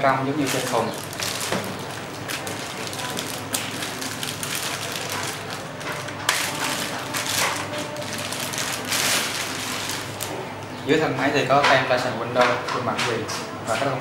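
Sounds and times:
plastic bag crinkling: 0.4 - 10.4.

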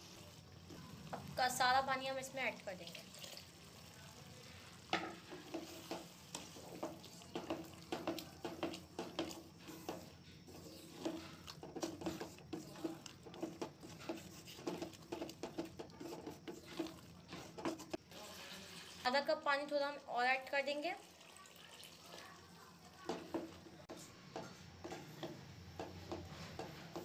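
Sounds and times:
faint simmering sizzle: 0.0 - 27.0
spoon knocking and scraping pot: 4.9 - 18.0, 23.0 - 27.0.

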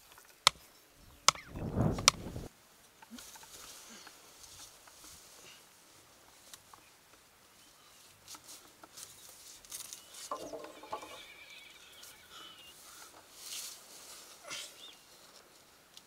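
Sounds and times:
faint rustling: 1.0 - 2.5
wooden pole knocking: 1.2 - 2.5, 10.3 - 11.2.

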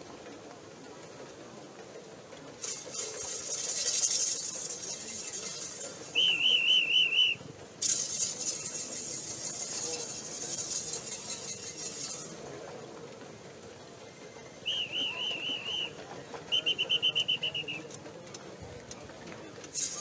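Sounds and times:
high hissing rattling noise: 2.6 - 12.8, 19.6 - 20.0
whistle trill: 6.1 - 7.4, 14.6 - 17.8.

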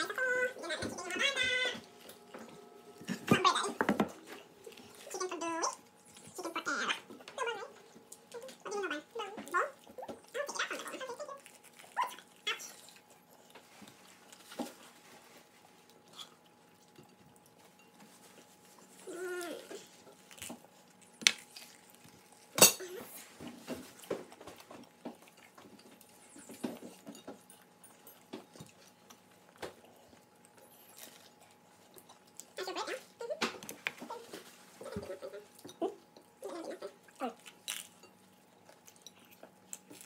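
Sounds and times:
cutlery and dishes clinking: 22.6 - 23.0.

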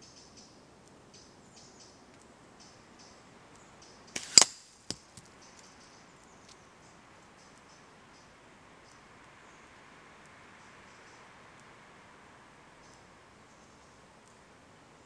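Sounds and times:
faint bird chirps: 0.0 - 4.4, 5.3 - 11.6, 12.4 - 15.0
slingshot snap: 4.1 - 5.3
projectile cracking against target: 4.2 - 5.0.

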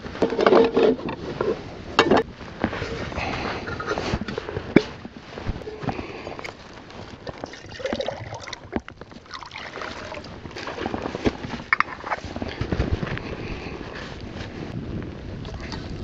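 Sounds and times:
wind buffeting microphone: 1.0 - 16.0
water sloshing: 7.2 - 12.3
footsteps in grass and snow: 10.3 - 15.1.

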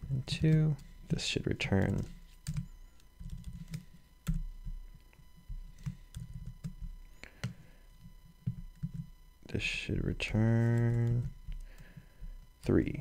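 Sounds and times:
typing on a keyboard: 1.7 - 4.4.

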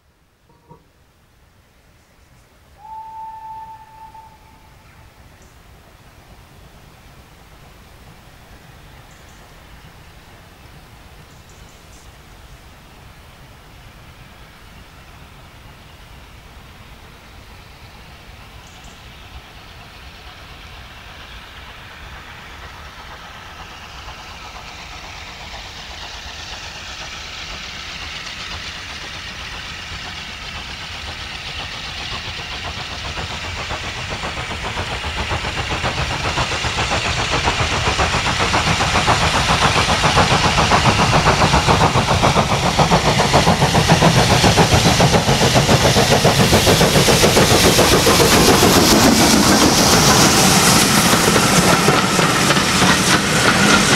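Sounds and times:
steam locomotive chuffing: 2.7 - 53.9.

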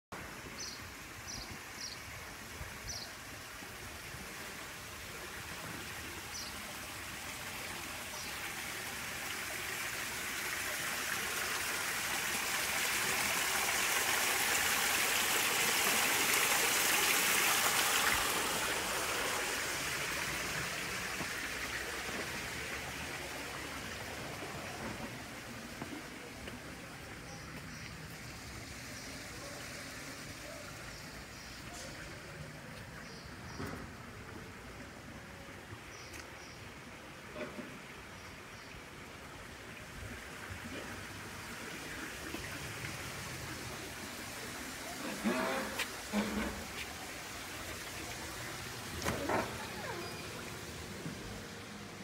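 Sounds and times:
fountain water splashing: 0.2 - 52.0.

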